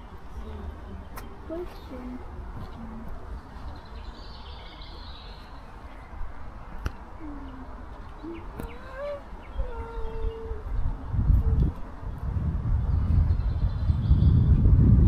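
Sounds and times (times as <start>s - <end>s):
faint distant voices: 0.0s - 12.1s
low rumble of wind: 0.0s - 15.0s
birds calling: 3.5s - 11.0s.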